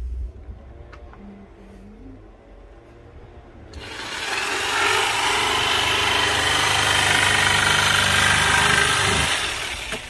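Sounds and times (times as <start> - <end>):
electric jigsaw cutting wood: 3.8 - 10.0.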